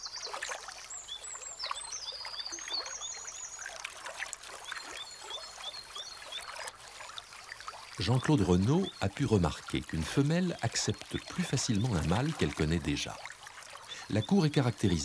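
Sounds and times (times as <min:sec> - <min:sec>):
water splashing and lapping: 0:00.0 - 0:15.0
otters chirping calls: 0:08.0 - 0:13.2, 0:13.8 - 0:15.0.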